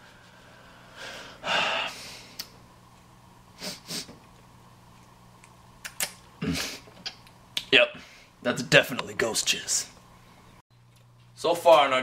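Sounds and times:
man breathing through nose: 0:00.0 - 0:02.4
man sniffing: 0:01.0 - 0:02.4, 0:03.6 - 0:04.2, 0:06.4 - 0:06.9.

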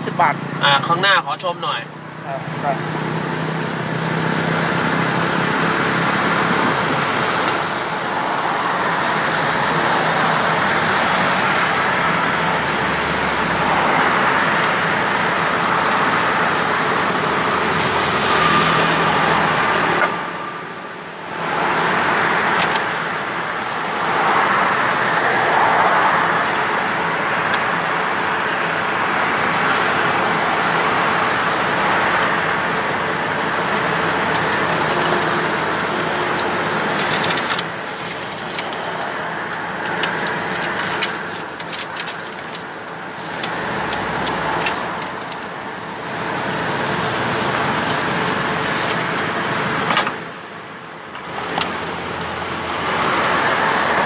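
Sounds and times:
road traffic noise: 0:00.0 - 0:54.0.

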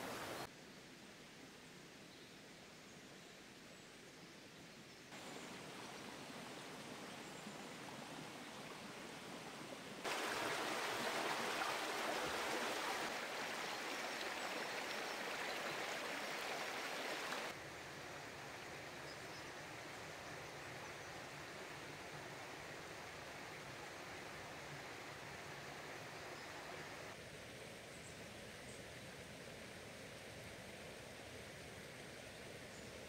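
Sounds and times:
water rushing over rocks: 0:10.0 - 0:17.6.

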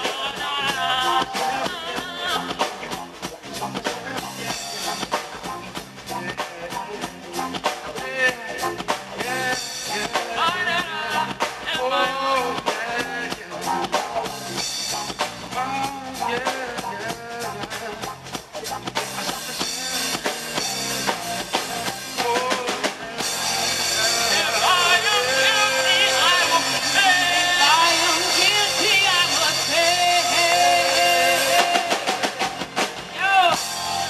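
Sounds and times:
man singing: 0:00.0 - 0:03.0, 0:06.1 - 0:14.6, 0:15.5 - 0:18.2, 0:19.0 - 0:33.7
drum beat: 0:00.0 - 0:34.0
electric guitar: 0:00.0 - 0:34.0.

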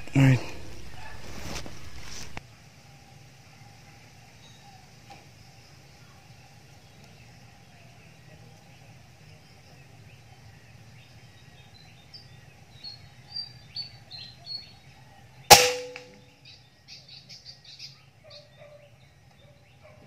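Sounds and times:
birds chirping: 0:00.0 - 0:01.2, 0:01.8 - 0:20.0
air rifle shot: 0:15.5 - 0:16.3.

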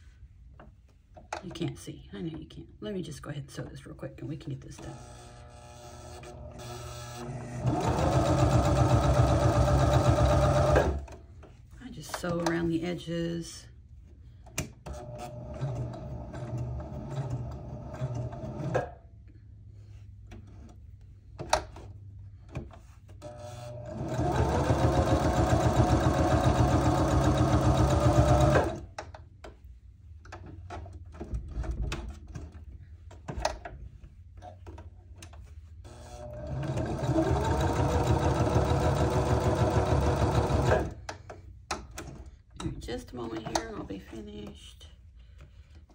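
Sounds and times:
sewing machine stitching: 0:04.8 - 0:11.1, 0:23.2 - 0:28.9, 0:35.9 - 0:41.0.

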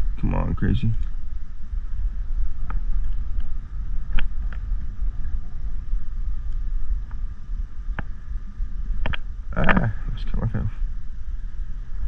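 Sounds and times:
wind buffeting microphone: 0:00.0 - 0:12.0
light clicks: 0:09.0 - 0:09.9.

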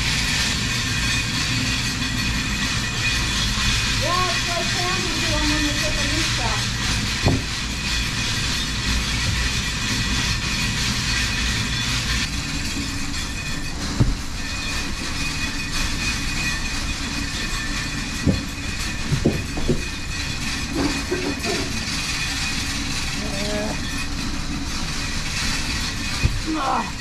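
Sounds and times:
machine rattle and hum: 0:00.0 - 0:27.0
hay bales thudding: 0:07.1 - 0:07.7, 0:13.7 - 0:14.8.

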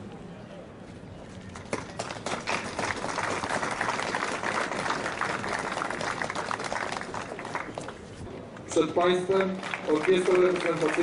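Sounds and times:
crowd applauding: 0:01.6 - 0:08.0, 0:09.4 - 0:11.0.

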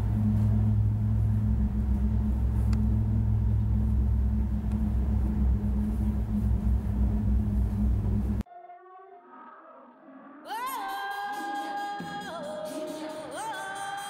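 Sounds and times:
cable car rumble and hum: 0:00.0 - 0:08.4.

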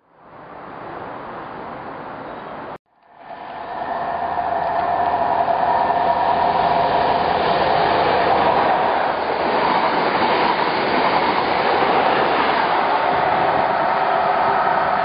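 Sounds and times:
whining tone: 0:02.9 - 0:10.0
train wheels rushing on rail: 0:03.2 - 0:15.0.

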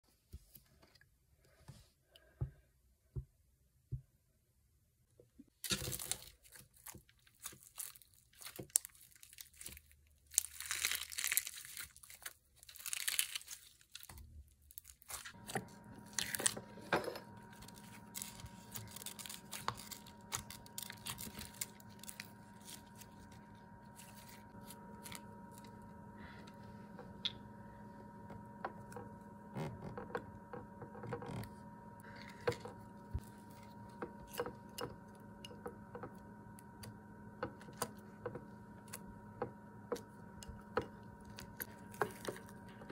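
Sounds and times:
slime crackling: 0:05.7 - 0:16.5
steady hum: 0:15.3 - 0:42.9.

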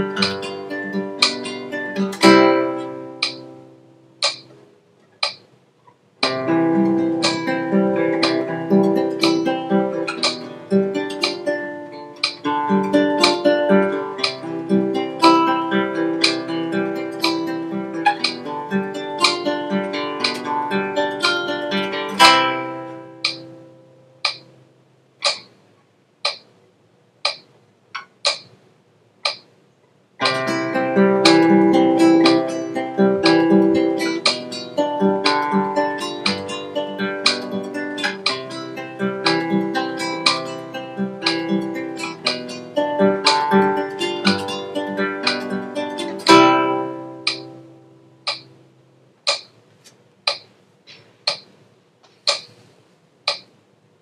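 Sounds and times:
classical guitar playing: 0:00.0 - 0:04.6, 0:06.2 - 0:24.6, 0:30.2 - 0:48.9
metronome ticking: 0:00.0 - 0:05.6, 0:06.2 - 0:24.6, 0:25.2 - 0:25.6, 0:26.2 - 0:26.6, 0:27.2 - 0:28.6, 0:29.2 - 0:29.5, 0:30.2 - 0:49.6, 0:50.2 - 0:51.6, 0:52.2 - 0:52.6, 0:53.2 - 0:53.6.

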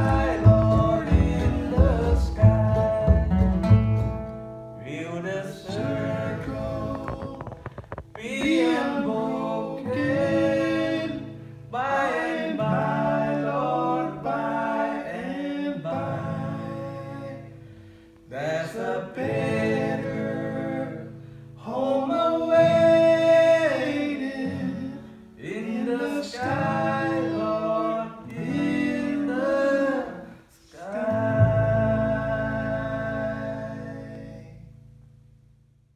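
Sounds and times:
man singing: 0:00.0 - 0:03.8, 0:04.8 - 0:17.5, 0:18.3 - 0:34.7
upright bass: 0:00.0 - 0:11.5, 0:30.9 - 0:35.9
mandolin: 0:00.0 - 0:12.2
acoustic guitar: 0:00.0 - 0:35.9.

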